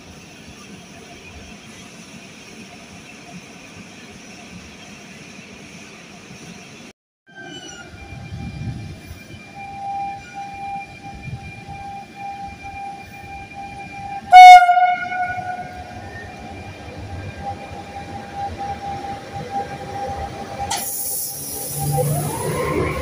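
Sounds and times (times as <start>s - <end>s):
electric locomotive whine: 0.0s - 23.0s
loud train horn blast: 14.0s - 16.1s.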